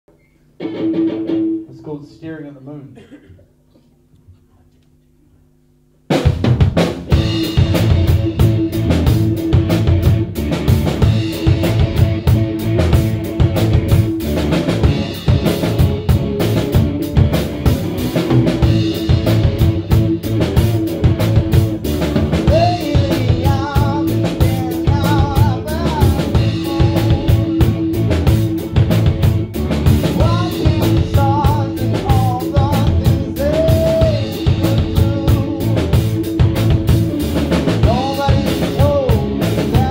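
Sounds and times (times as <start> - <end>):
rock band playing live: 0.6 - 1.7, 6.1 - 39.9
person singing: 22.4 - 28.1, 30.1 - 36.3, 37.8 - 39.9.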